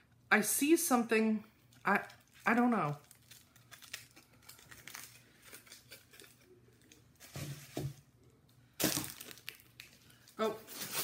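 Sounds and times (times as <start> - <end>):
foil wrapping crinkling and tearing: 1.7 - 7.9, 8.8 - 11.0.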